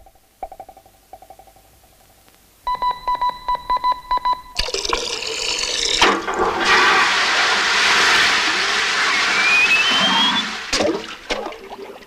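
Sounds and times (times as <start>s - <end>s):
electronic beeping: 2.7s - 4.8s.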